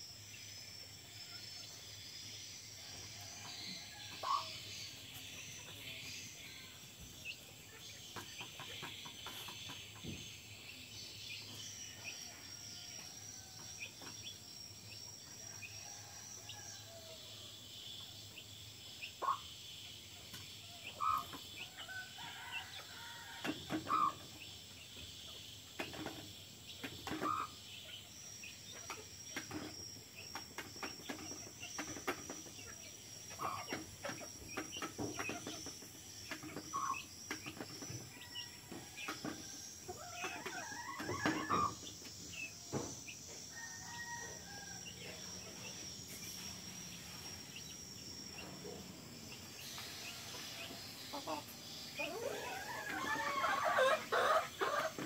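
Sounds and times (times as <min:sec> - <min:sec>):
insects trilling: 0:00.0 - 0:55.0
hen clucking: 0:04.2 - 0:04.6, 0:20.8 - 0:21.6, 0:23.8 - 0:24.2, 0:27.0 - 0:27.6, 0:33.3 - 0:37.6, 0:49.6 - 0:55.0.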